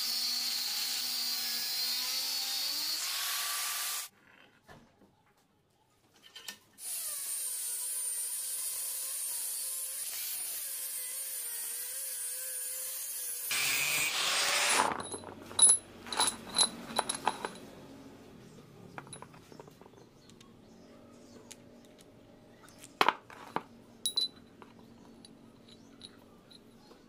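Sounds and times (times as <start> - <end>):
power tool motor whine: 12.3 - 15.0
metallic clinks of steel pieces: 15.0 - 17.7, 24.0 - 24.6, 25.2 - 26.9.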